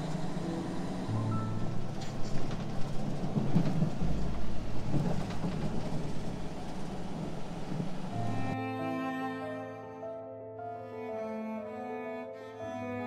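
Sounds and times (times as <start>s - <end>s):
road and wind noise: 0.0s - 8.6s
truck engine drone: 0.0s - 8.6s.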